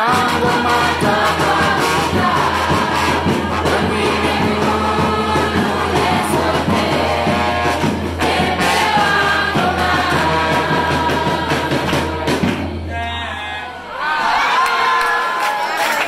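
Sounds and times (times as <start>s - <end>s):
trombones: 0.0s - 12.8s
marching bass drum: 0.0s - 12.9s
trumpet: 0.0s - 13.1s
snare drum: 0.1s - 12.8s.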